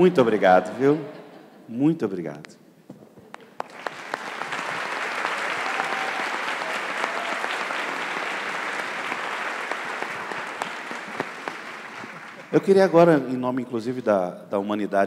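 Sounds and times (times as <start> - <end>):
audience applauding: 3.3 - 12.7.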